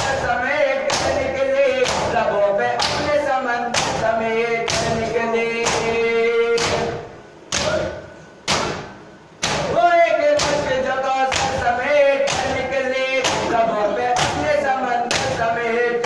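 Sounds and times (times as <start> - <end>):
chest beating in unison: 4.7 - 9.8.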